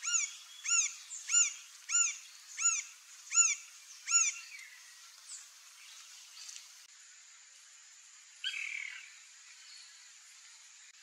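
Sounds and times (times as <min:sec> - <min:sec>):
woodpecker calling: 0:00.0 - 0:04.7.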